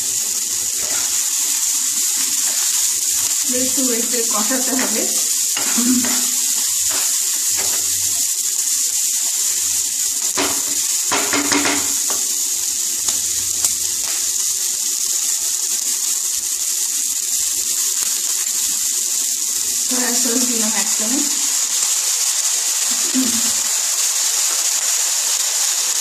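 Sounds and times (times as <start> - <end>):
vegetables sizzling in oil: 0.0 - 26.0
wooden spatula scraping: 0.6 - 3.5.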